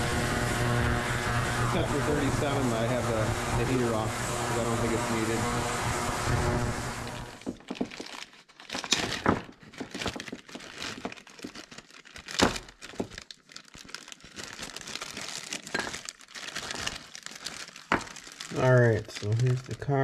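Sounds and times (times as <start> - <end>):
plastic bag crinkling: 7.3 - 20.0.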